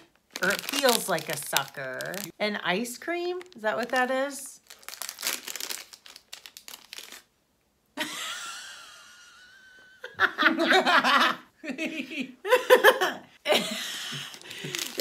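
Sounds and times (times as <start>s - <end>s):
plastic wrapper crinkling: 0.0s - 7.3s, 14.3s - 15.0s
laughter: 8.0s - 15.0s.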